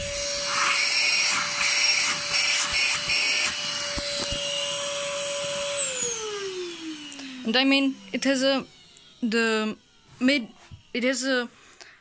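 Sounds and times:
handheld vacuum motor whine: 0.0s - 12.0s.

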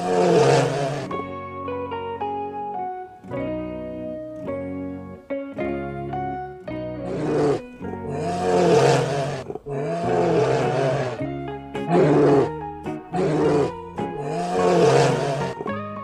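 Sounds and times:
bear growling: 0.0s - 1.3s, 7.0s - 15.8s
plucked string music: 0.7s - 16.0s.

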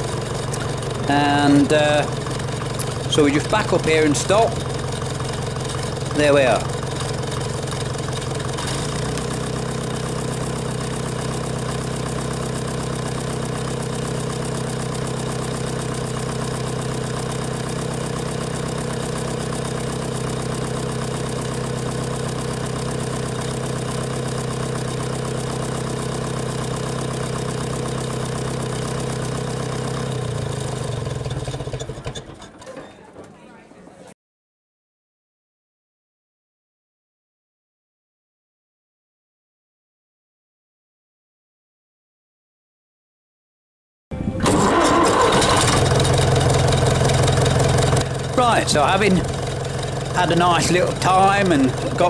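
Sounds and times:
tractor engine idling: 0.0s - 33.4s, 44.4s - 52.0s.

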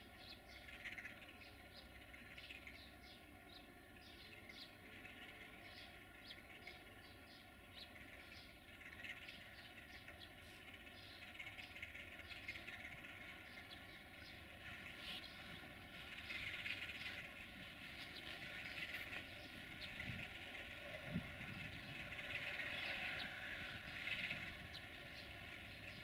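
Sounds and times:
small birds chirping: 0.0s - 26.0s
diesel locomotive approaching: 12.8s - 26.0s.

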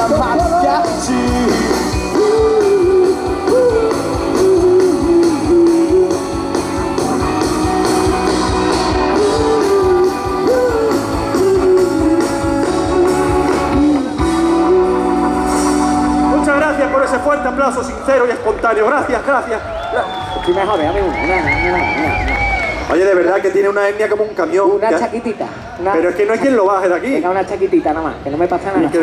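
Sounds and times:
steady drum beat: 0.0s - 14.6s
guitar bending melody: 0.0s - 18.1s.

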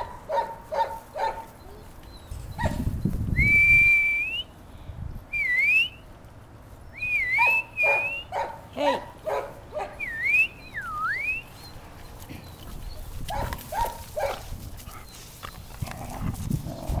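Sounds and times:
puppies yipping: 7.3s - 15.8s.

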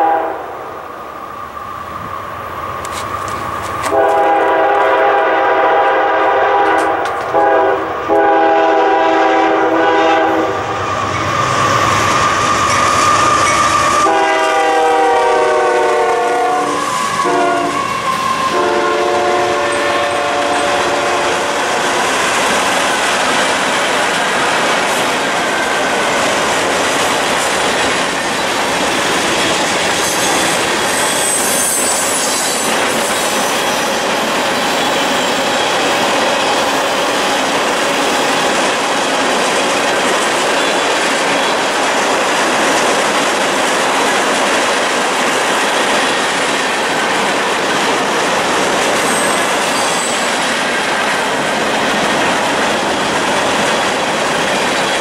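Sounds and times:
locomotive horn blasts: 0.0s - 0.5s, 3.8s - 10.6s, 13.5s - 17.9s, 18.5s - 21.6s
freight cars clickety-clack: 6.6s - 7.6s, 20.5s - 55.0s
faint wheel squeal: 10.8s - 14.0s.

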